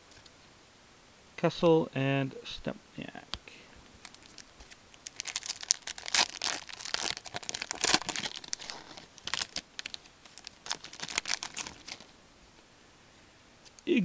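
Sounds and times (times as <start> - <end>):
card pack wrapper crinkling and tearing: 4.0 - 12.1.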